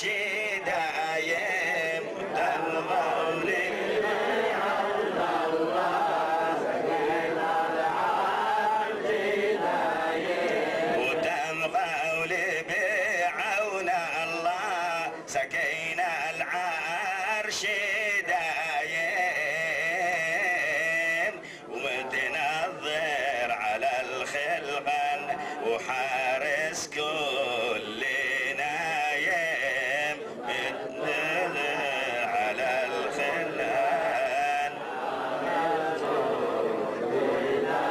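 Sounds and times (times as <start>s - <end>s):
man chanting prayer: 0.0s - 5.0s, 10.9s - 34.8s
group of voices chanting: 2.0s - 11.3s, 28.8s - 37.9s.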